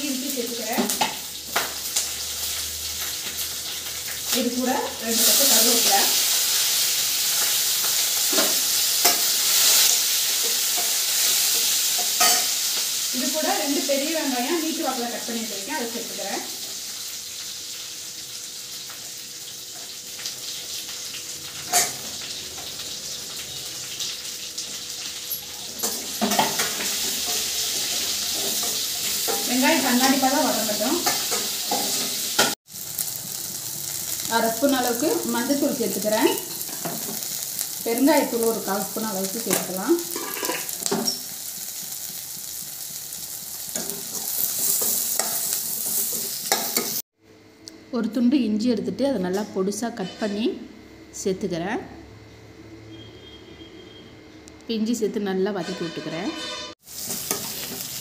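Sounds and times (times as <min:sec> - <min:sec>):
hot oil sizzling: 0:00.0 - 0:47.2, 0:55.6 - 0:58.0
metal spatula scraping pan: 0:40.1 - 0:41.3, 0:55.6 - 0:57.8.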